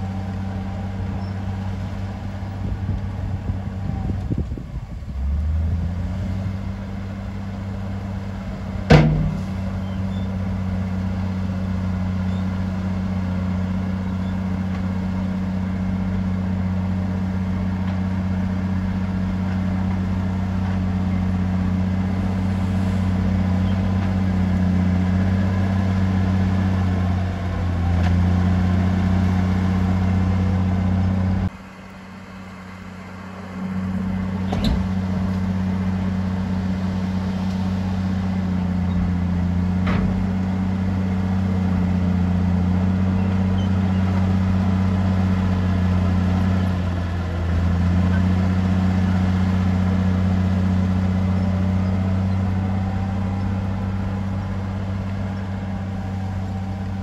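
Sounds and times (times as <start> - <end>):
bulldozer diesel engine drone: 0.0 - 57.0
sharp knock: 8.9 - 9.6.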